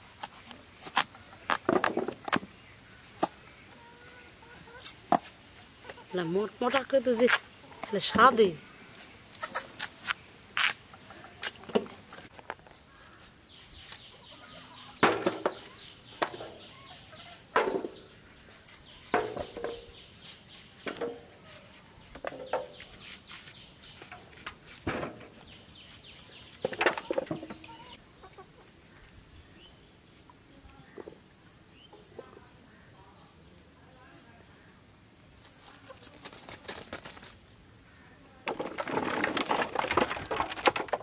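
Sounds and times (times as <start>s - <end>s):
chickens clucking: 3.0s - 9.9s, 10.9s - 12.4s, 13.2s - 20.0s, 26.3s - 29.1s, 35.4s - 37.4s.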